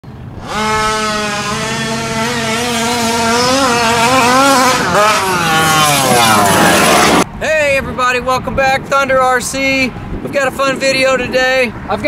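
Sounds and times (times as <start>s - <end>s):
two-stroke engine revving: 0.2s - 7.3s.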